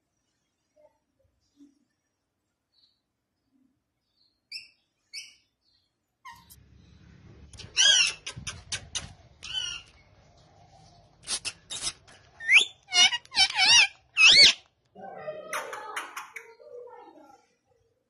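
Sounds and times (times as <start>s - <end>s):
parakeet screeching calls: 7.6s - 8.2s, 9.4s - 9.9s, 11.3s - 14.6s.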